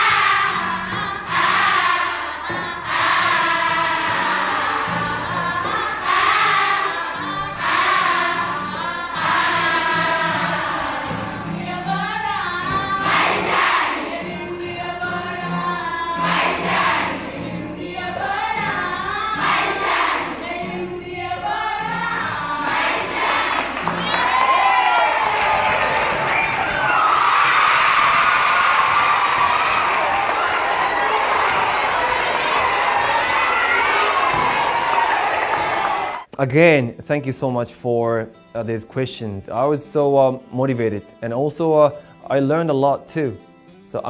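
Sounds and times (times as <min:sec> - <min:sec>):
girls singing in chorus: 0:00.0 - 0:24.5, 0:30.5 - 0:36.3.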